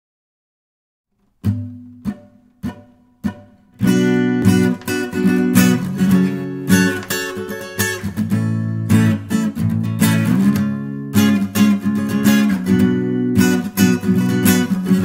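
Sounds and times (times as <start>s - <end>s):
acoustic guitar strumming: 1.2s - 15.0s.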